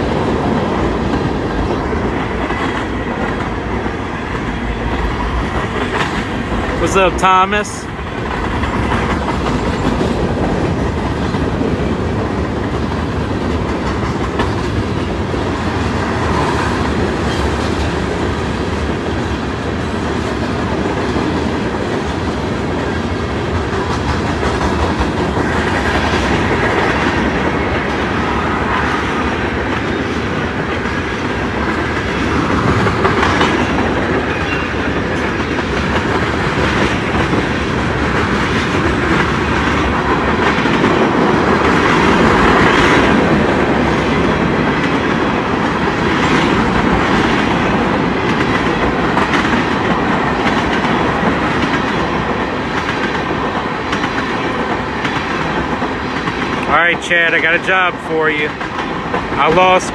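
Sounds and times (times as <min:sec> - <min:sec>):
freight train rolling past: 0:00.0 - 0:59.9
steel wheels clacking over rails: 0:00.0 - 0:59.9.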